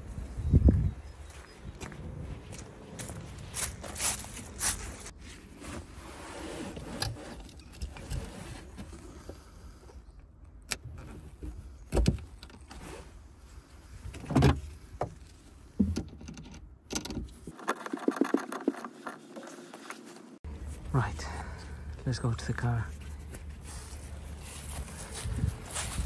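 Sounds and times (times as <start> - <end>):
footsteps: 0.7 - 5.1, 22.9 - 26.0.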